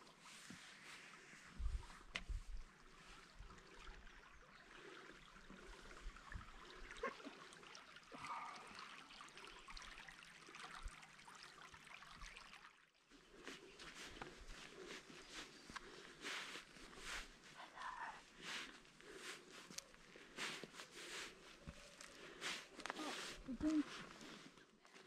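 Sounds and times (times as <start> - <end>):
faint stream trickling: 0.0 - 25.0.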